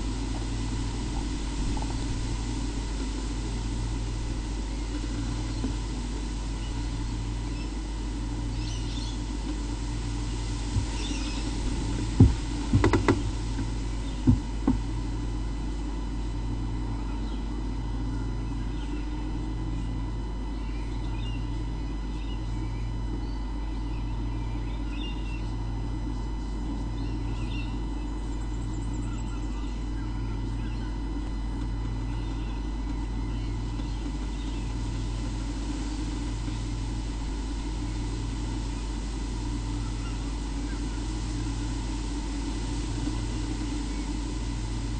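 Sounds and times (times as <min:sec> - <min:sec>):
electrical hum with low throb: 0:00.0 - 0:44.9
sharp knocks: 0:12.2 - 0:13.3.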